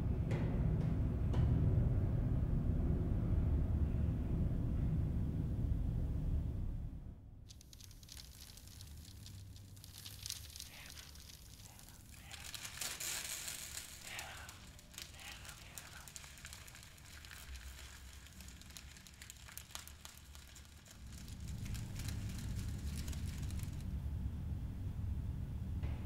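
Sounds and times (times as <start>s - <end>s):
paper crackling and crinkling: 7.5s - 23.9s.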